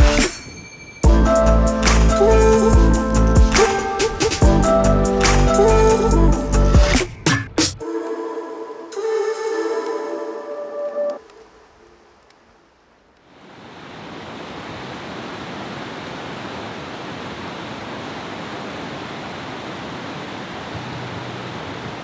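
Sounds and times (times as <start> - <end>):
river rapids rushing over boulders: 13.3 - 22.0.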